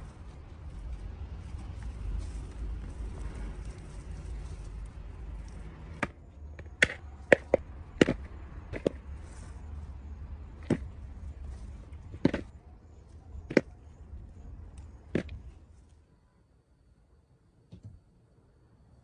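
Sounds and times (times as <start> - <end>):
low steady rumble: 0.0 - 16.0
potatoes knocking into plastic bowl: 6.0 - 9.0, 12.2 - 12.5.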